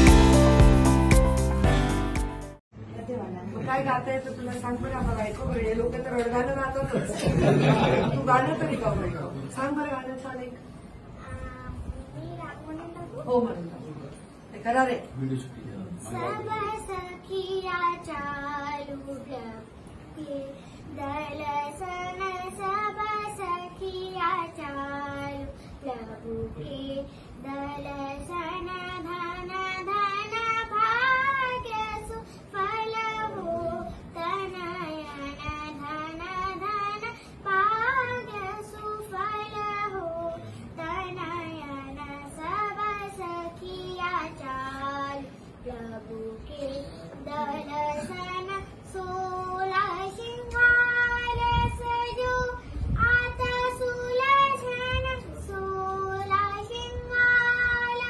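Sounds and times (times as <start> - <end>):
girl singing: 11.1 - 13.2, 16.1 - 58.0.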